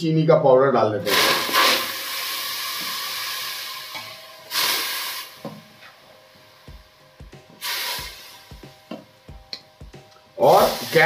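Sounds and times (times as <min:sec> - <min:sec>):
boiling water hissing: 0:01.0 - 0:06.7, 0:07.5 - 0:08.9, 0:10.3 - 0:11.0.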